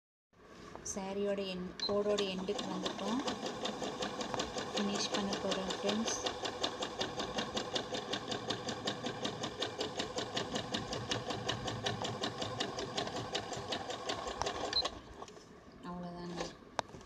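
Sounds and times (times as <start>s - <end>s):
sewing machine stitching: 1.9s - 15.2s.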